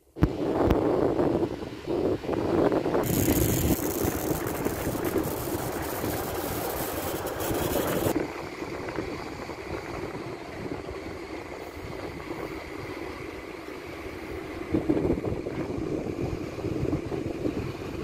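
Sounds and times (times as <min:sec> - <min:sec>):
bright hiss: 0:03.0 - 0:08.2
excavator diesel engine running: 0:03.0 - 0:08.2.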